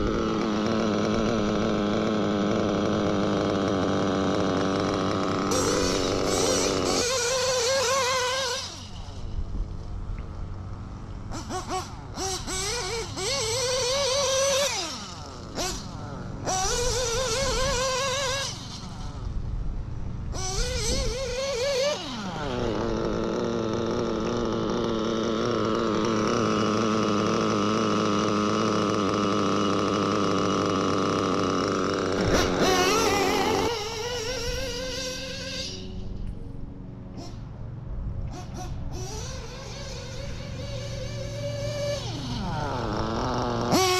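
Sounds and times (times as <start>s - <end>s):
nitro engine revving and idling: 0.0s - 43.9s.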